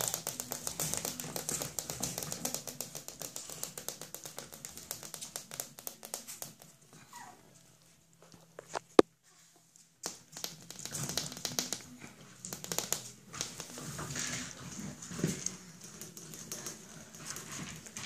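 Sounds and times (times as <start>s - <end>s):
puppies clicking on wire pen: 0.0s - 7.2s, 10.0s - 18.0s
puppy whine: 7.0s - 7.6s.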